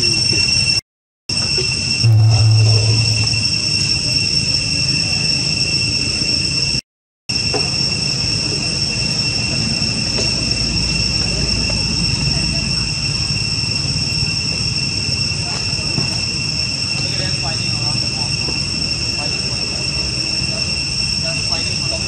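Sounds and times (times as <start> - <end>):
low rumble: 2.0 - 4.2.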